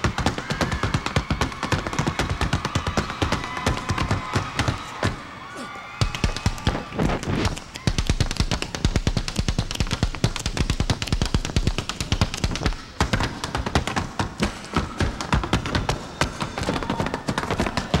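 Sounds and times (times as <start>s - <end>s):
tap shoes striking stage floor: 6.0s - 18.0s.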